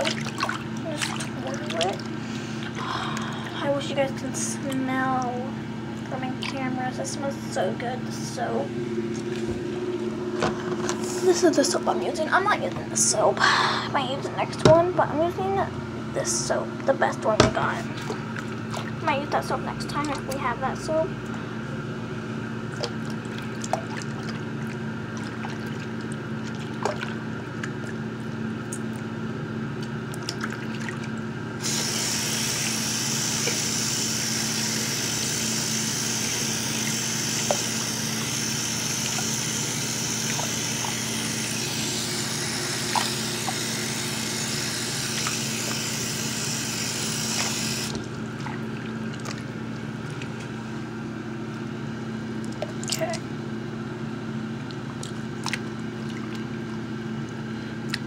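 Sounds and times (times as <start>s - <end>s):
steady low hum: 0.0s - 58.0s
tap water running into sink: 31.6s - 48.1s.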